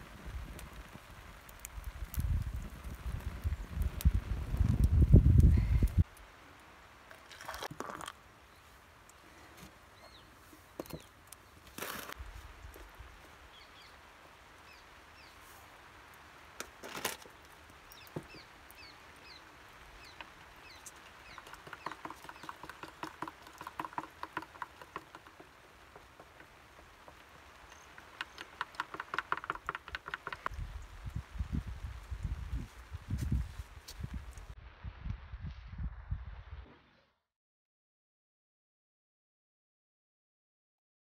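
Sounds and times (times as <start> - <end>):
birds chirping: 9.8 - 11.7, 17.3 - 31.2.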